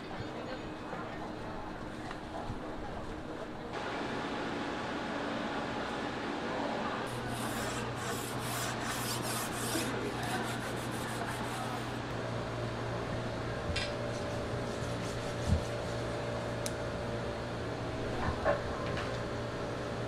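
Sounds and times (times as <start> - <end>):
rhythmic rasping rubbing strokes: 7.1 - 12.0.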